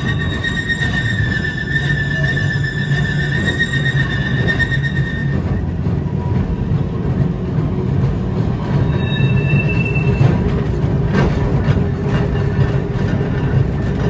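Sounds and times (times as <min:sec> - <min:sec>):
high wheel squeal: 0:00.0 - 0:05.7, 0:08.7 - 0:10.6
tram wheels rumbling: 0:00.0 - 0:14.0.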